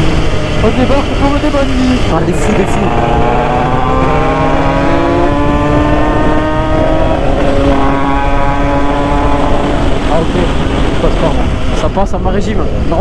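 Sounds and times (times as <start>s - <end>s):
moped engine revving hard: 0.0s - 11.8s
rushing noise: 0.0s - 13.0s.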